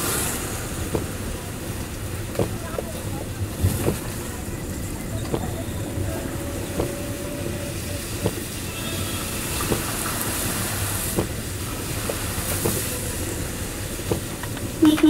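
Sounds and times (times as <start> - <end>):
road and rain noise: 0.0 - 15.0.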